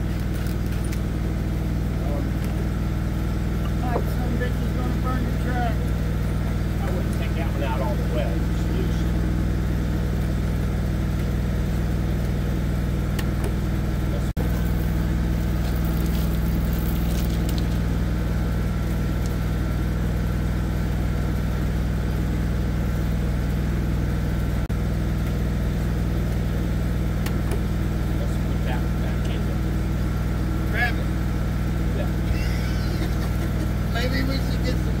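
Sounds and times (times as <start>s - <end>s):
engine idling: 0.0s - 35.0s.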